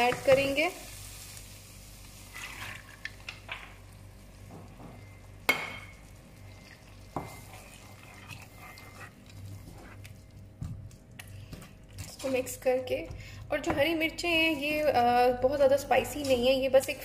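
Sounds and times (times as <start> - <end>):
food sizzling: 0.0 - 10.4
spatula scraping a wok: 2.2 - 3.1, 7.1 - 10.0.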